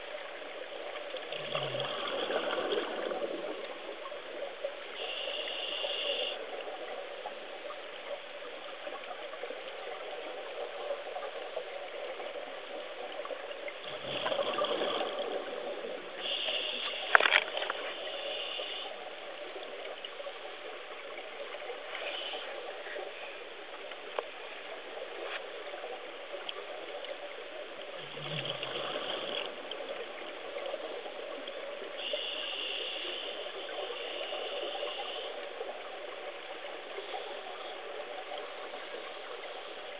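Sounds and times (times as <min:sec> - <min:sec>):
underwater hiss: 0:00.1 - 0:07.1, 0:08.8 - 0:20.8, 0:21.6 - 0:24.0, 0:27.9 - 0:39.9
bubbling from exhaled breath: 0:01.4 - 0:03.6, 0:13.9 - 0:15.6.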